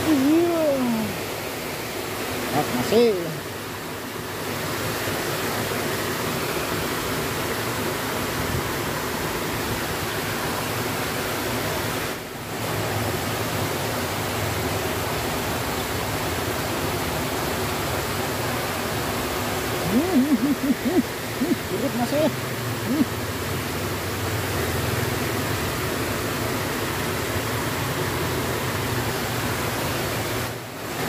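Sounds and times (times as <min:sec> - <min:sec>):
waterfall rushing into river: 0:00.0 - 0:31.0.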